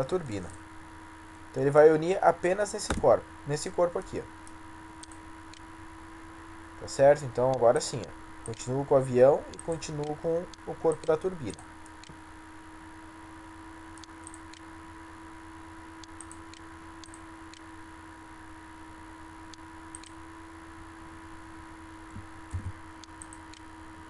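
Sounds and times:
electrical hum and hiss: 0.0 - 24.0
low thump: 2.9 - 3.1, 22.5 - 22.8
computer mouse clicks: 14.0 - 14.6, 16.0 - 17.6, 19.9 - 20.2, 22.5 - 23.7.

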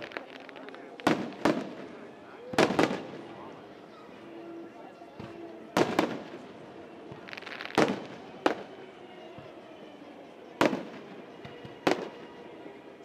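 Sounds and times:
firework crackle: 0.0 - 3.4, 5.8 - 8.8
firework shells bursting with bangs: 7.1 - 8.6.

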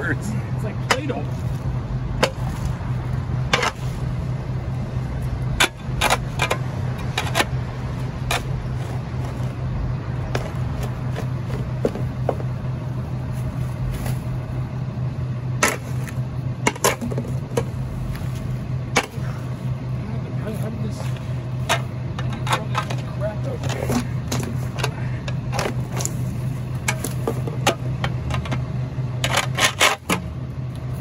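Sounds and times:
garbage truck engine idling: 0.0 - 31.0.

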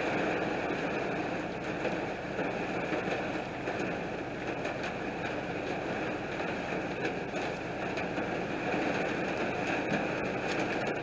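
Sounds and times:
heavy rain pouring: 0.0 - 11.0
raindrop ticks: 0.8 - 11.0.

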